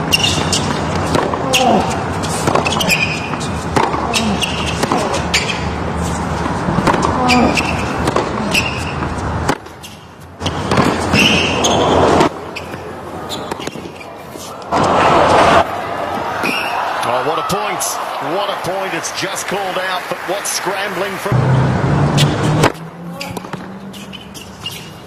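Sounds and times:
racquets striking tennis ball: 0.0 - 15.4, 22.2 - 25.0
crowd murmur: 12.2 - 24.1.

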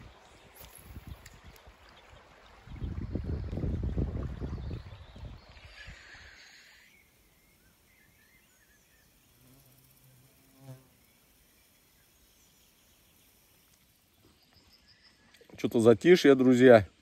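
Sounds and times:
soft wash of water: 0.0 - 9.4
flying insect buzzing: 9.2 - 11.6.

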